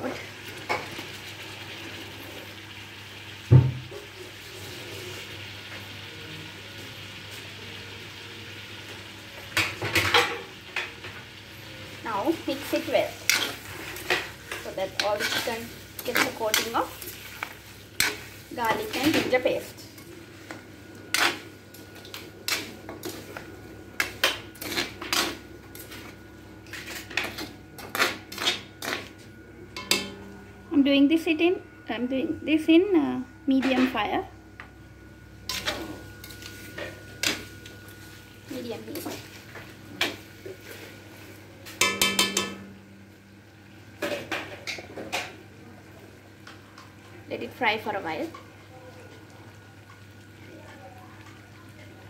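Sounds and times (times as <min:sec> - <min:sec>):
spoon scraping metal wok: 0:12.6 - 0:19.4, 0:24.0 - 0:26.0, 0:35.5 - 0:37.5.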